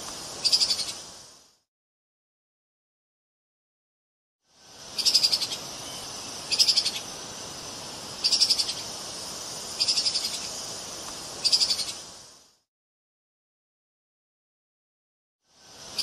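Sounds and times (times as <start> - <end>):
steady hiss: 0.0 - 1.7, 4.4 - 12.7, 15.4 - 16.0.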